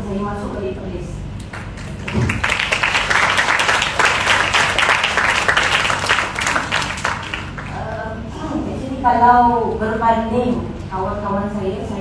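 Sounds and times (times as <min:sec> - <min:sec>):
audience applauding: 0:01.5 - 0:07.8.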